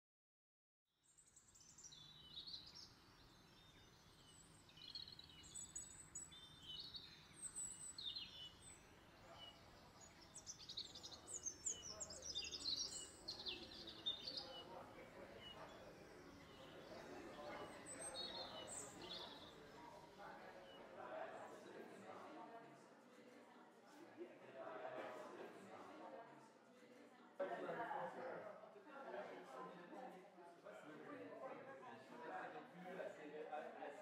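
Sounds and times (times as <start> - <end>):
birds chirping and singing: 1.1 - 20.8
faint murmur of voices: 4.2 - 34.0.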